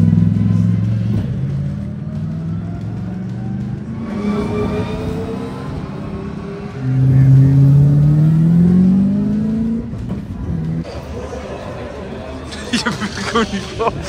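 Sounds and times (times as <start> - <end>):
loud car revving: 0.0 - 10.9
racing car engines accelerating: 0.0 - 14.0.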